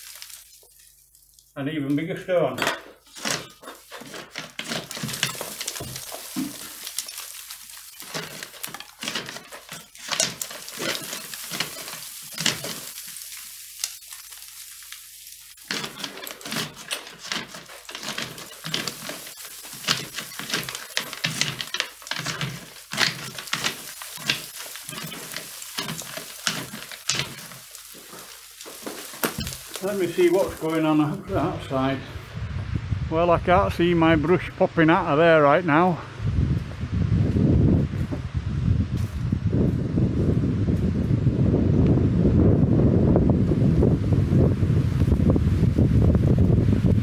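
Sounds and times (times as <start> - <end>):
grit and stones rattling down: 0.0 - 0.6, 3.0 - 31.9
chimney brush scraping in flue: 2.9 - 31.6.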